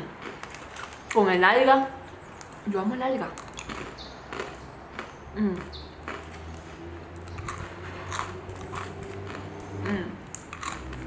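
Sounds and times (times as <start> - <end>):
rice crackers crunching: 0.2 - 1.3, 3.4 - 6.6, 7.2 - 9.5, 10.3 - 11.0.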